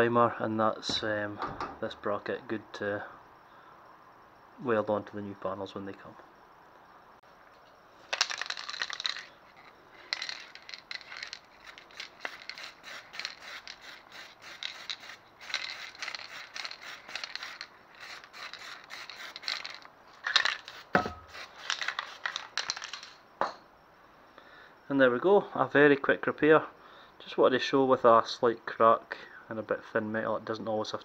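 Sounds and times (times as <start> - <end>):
aerosol spray can bursts: 12.0 - 19.8.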